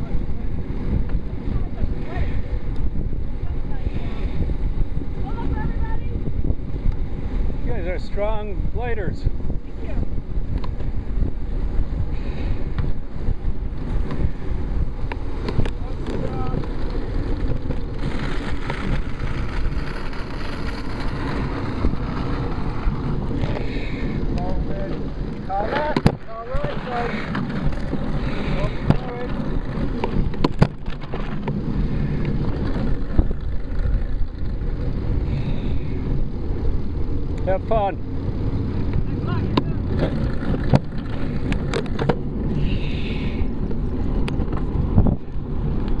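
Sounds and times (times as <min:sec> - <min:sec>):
wind rumbling on microphone: 0:00.0 - 0:46.0
clicks and knocks from bike: 0:15.0 - 0:19.0, 0:25.7 - 0:34.8, 0:38.9 - 0:42.3, 0:43.6 - 0:45.2.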